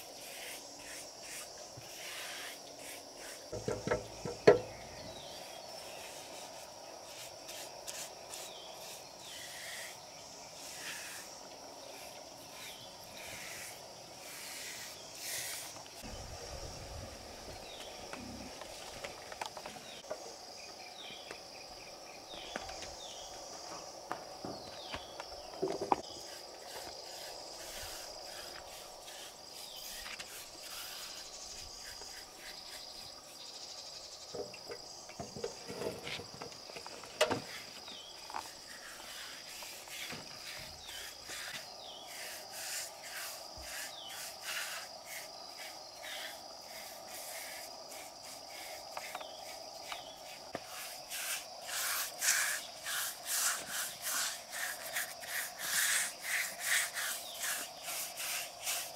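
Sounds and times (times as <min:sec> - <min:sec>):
scratchy rubbing strokes: 0:00.0 - 0:04.6, 0:10.6 - 0:16.1, 0:26.0 - 0:33.4, 0:37.5 - 0:58.9
insect chirping: 0:00.0 - 0:58.9
outdoor background noise: 0:00.0 - 0:58.9
sharp knocks: 0:03.5 - 0:04.8.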